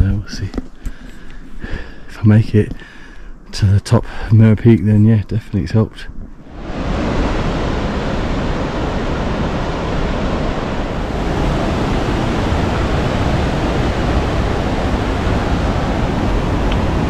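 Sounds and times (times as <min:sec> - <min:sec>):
rushing river: 0:06.4 - 0:17.0.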